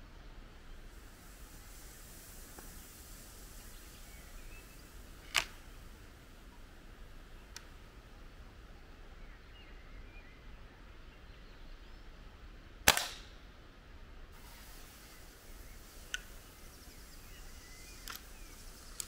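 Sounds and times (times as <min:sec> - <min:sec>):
air rifle barrel clicks: 0:05.2 - 0:05.6, 0:12.9 - 0:13.3, 0:17.9 - 0:19.0
air rifle shot: 0:12.9 - 0:13.3.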